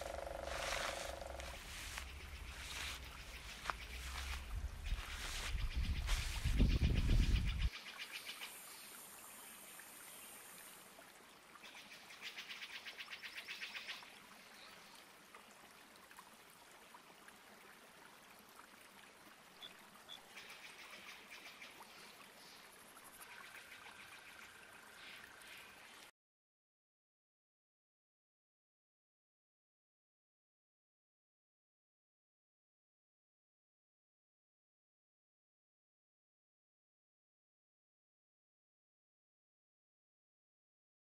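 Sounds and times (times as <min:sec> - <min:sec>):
faint hiss: 0:08.2 - 0:11.0.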